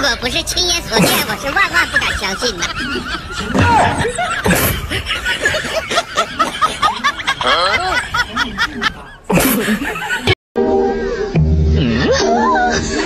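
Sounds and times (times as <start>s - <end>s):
people talking: 0.0s - 10.4s
people laughing: 1.1s - 10.4s, 11.8s - 13.0s.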